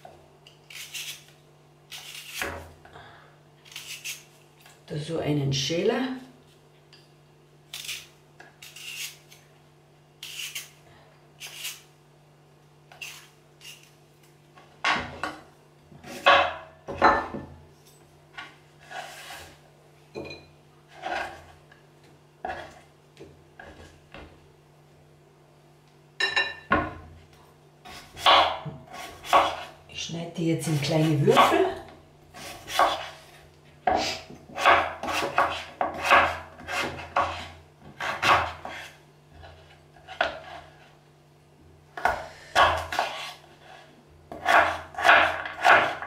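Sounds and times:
peeler scraping vegetable skin: 0.5s - 2.5s, 3.6s - 4.3s, 7.7s - 9.5s, 10.2s - 10.8s, 11.4s - 11.9s, 12.9s - 14.0s.

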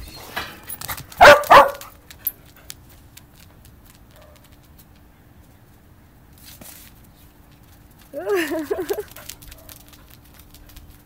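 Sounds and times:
dog barking: 1.2s - 1.9s
dog yipping: 1.2s - 1.9s.

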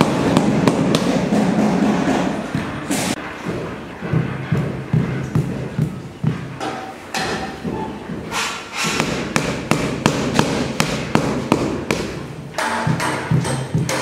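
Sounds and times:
rubber mallet tapping floor tile: 9.0s - 14.0s.

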